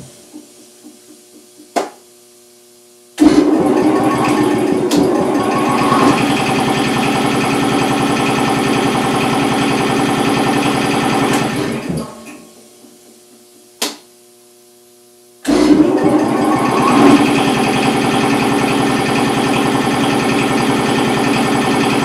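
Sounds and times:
electrical hum: 0.0 - 19.2
air compressor pumping: 3.2 - 12.7, 15.4 - 22.0.

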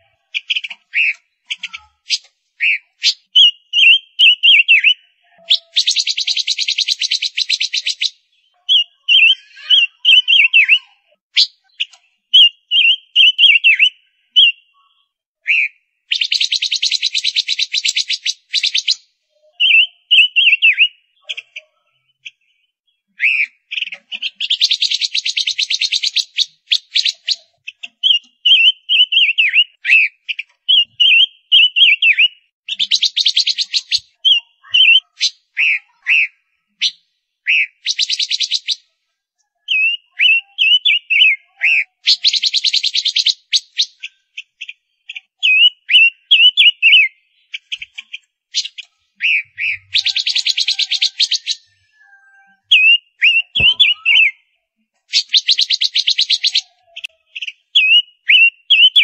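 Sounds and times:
bird clear slurred notes: 41.9 - 58.0.

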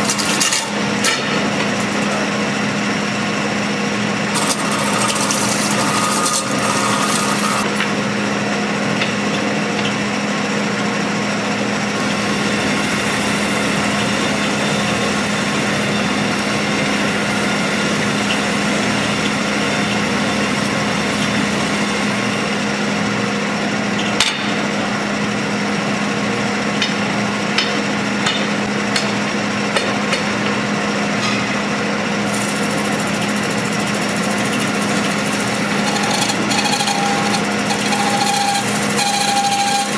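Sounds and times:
tool scraping spinning metal: 0.0 - 2.3, 4.3 - 7.8, 32.3 - 39.9.

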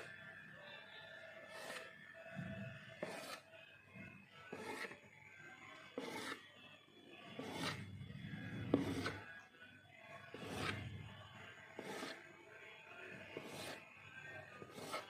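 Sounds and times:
knife cutting dough on a plate: 1.5 - 2.0, 2.8 - 3.6, 4.4 - 5.0, 6.0 - 6.5, 7.3 - 9.4, 10.3 - 11.0, 11.8 - 12.3, 13.2 - 15.0.

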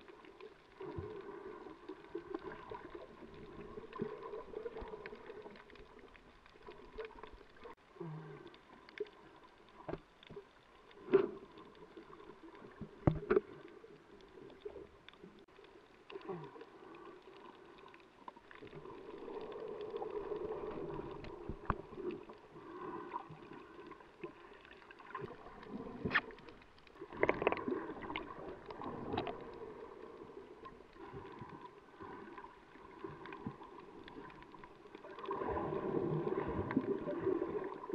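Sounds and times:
underwater churning sea water: 0.0 - 37.9
sharp underwater clicks: 26.0 - 29.5.

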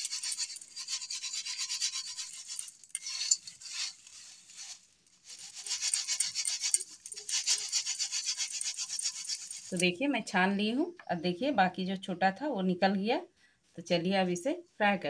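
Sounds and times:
dry flakes rattling on metal plate: 0.0 - 10.0.

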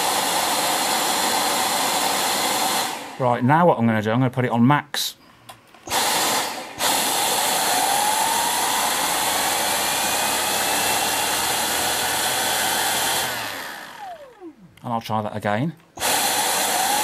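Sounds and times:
cordless vacuum running: 0.0 - 3.2, 5.9 - 14.6, 16.0 - 17.0
vacuum winding down: 0.0 - 3.2, 5.9 - 14.8, 16.0 - 17.0.

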